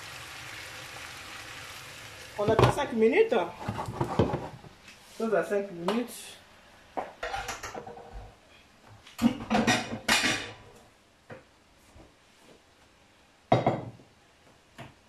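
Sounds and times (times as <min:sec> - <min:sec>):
dishes clattering in a metal sink: 0:02.4 - 0:02.8, 0:07.2 - 0:08.3, 0:09.2 - 0:10.7.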